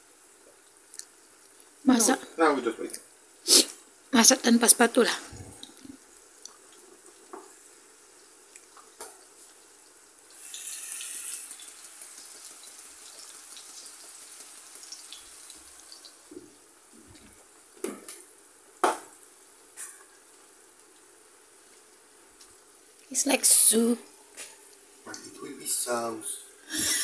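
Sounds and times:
liquid hissing in hot pan: 3.4s - 3.8s, 9.2s - 16.3s.

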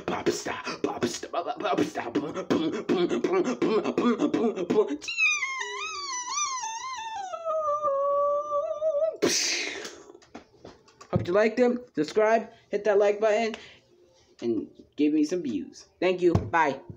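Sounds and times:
beatboxing: 0.0s - 8.0s, 8.8s - 10.2s.

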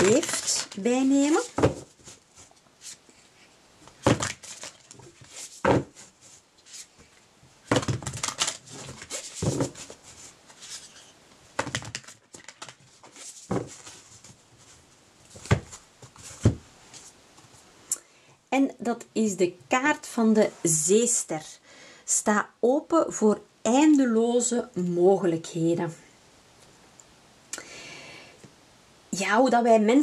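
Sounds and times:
cards being shuffled: 0.0s - 3.0s, 4.0s - 7.0s, 7.7s - 14.8s.

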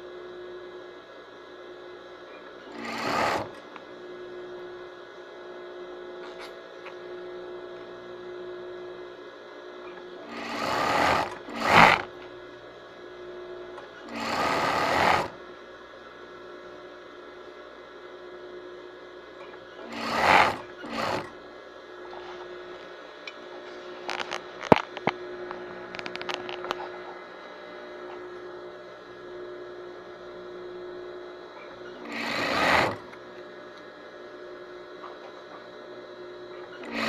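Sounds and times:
faint steady hum: 0.0s - 37.0s
sewing machine stitching: 2.6s - 3.7s, 9.9s - 12.2s, 14.0s - 15.4s, 19.4s - 21.4s, 31.6s - 33.2s, 36.6s - 37.0s.

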